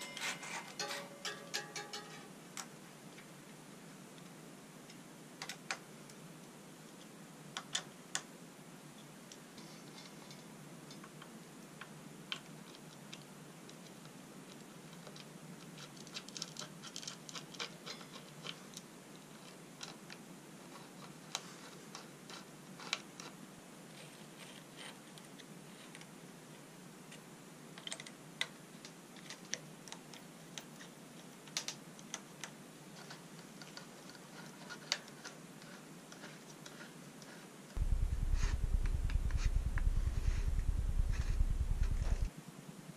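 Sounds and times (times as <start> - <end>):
steady low hiss: 0.0 - 15.8, 37.6 - 42.9
small tool clicks and ticks: 37.8 - 42.3.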